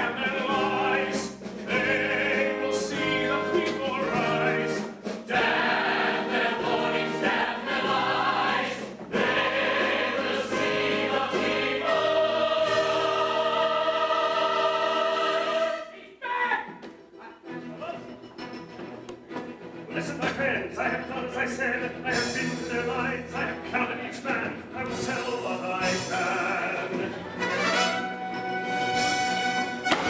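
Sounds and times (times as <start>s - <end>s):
ensemble singing in chorus: 0.0s - 16.1s
pit orchestra: 0.0s - 30.0s.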